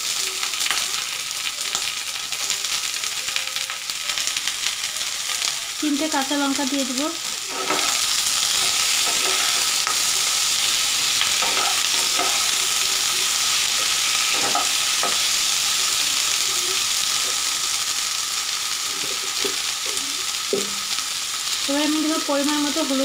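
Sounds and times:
vegetables sizzling in hot oil: 0.0s - 23.0s
wooden spatula scraping pan: 7.5s - 10.0s.

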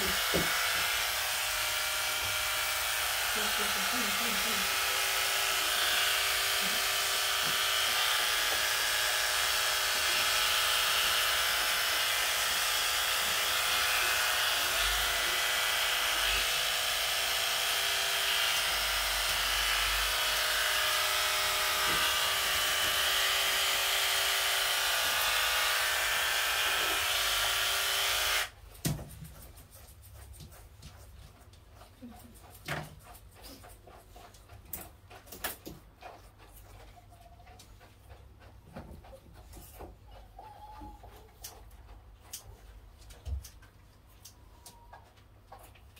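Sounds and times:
electric clippers whirring: 0.0s - 28.6s.

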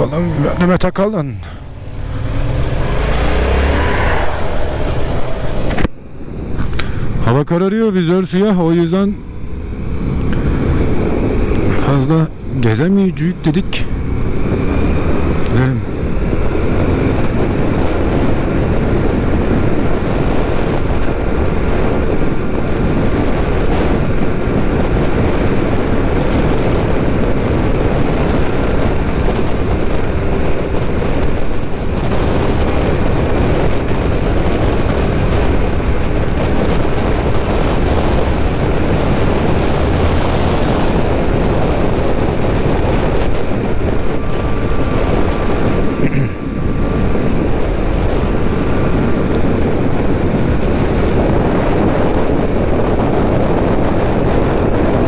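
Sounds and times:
wind rushing over microphone: 0.0s - 55.0s
motorcycle engine running: 1.5s - 7.2s.

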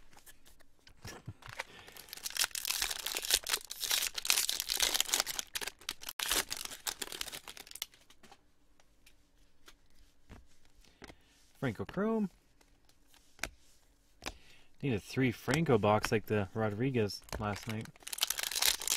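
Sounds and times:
foil wrapper tearing and crinkling: 1.8s - 7.9s, 17.5s - 18.9s.

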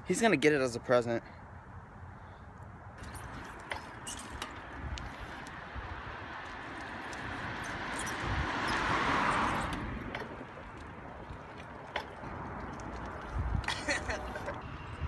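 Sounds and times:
wheels clicking over joints: 3.0s - 14.8s
bicycle tyre noise on concrete: 3.0s - 15.0s
wind rushing over microphone: 3.0s - 15.0s.

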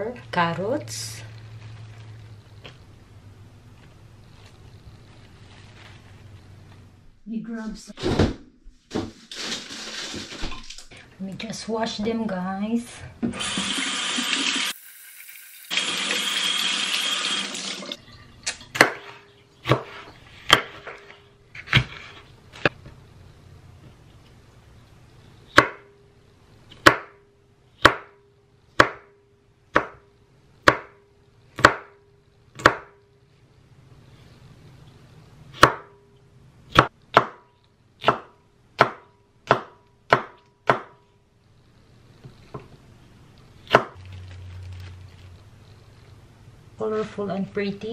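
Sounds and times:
knife chopping on wooden board: 18.8s - 21.0s, 25.5s - 25.9s, 26.8s - 27.2s, 27.8s - 28.2s, 28.8s - 30.0s, 30.6s - 31.0s, 31.6s - 32.0s, 32.6s - 33.0s, 35.6s - 36.0s, 36.7s - 41.0s.

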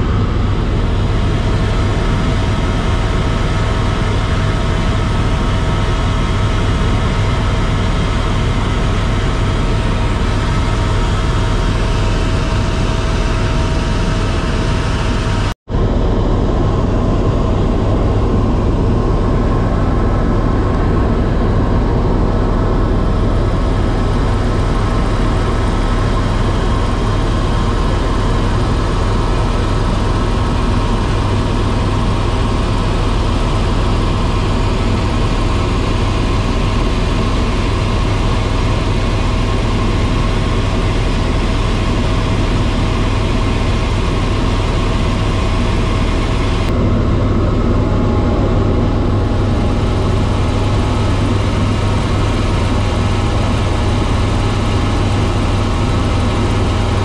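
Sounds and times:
faint steady whine: 0.0s - 57.0s
helicopter engine and rotor drone: 0.0s - 57.0s.

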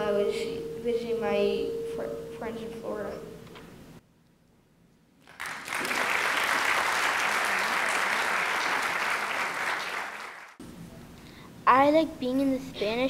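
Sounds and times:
audience applauding: 5.2s - 10.6s.

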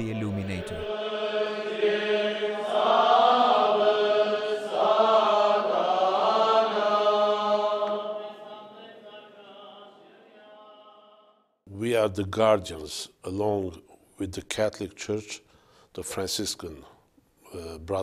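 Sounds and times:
men chanting: 0.0s - 11.4s.

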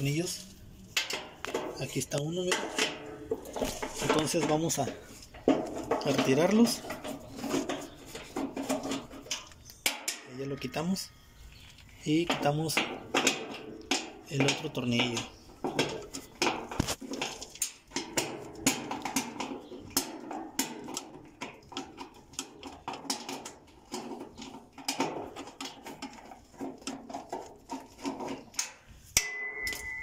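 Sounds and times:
tools clinking on metal: 28.6s - 30.0s.

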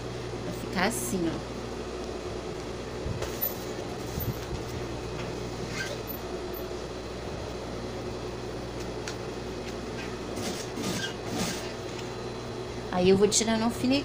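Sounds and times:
electric motor hum: 0.0s - 14.0s.

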